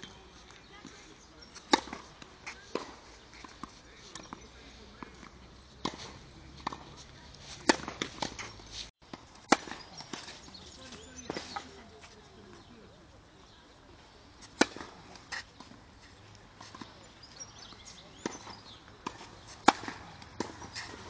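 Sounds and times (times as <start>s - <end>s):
racket striking tennis ball: 1.5s - 4.4s, 7.5s - 8.6s, 9.4s - 10.4s, 14.4s - 15.8s, 18.1s - 21.0s.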